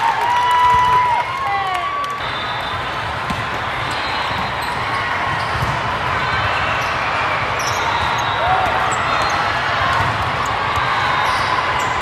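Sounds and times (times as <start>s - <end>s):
balls and feet thudding on courts: 3.1s - 7.0s, 7.6s - 12.0s.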